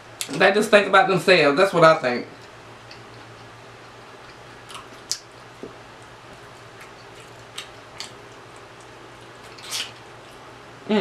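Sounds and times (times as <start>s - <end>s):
faint low hum: 0.0s - 11.0s
mouth smacking and chewing: 2.4s - 10.5s
fingers pulling apart chicken: 6.6s - 10.2s.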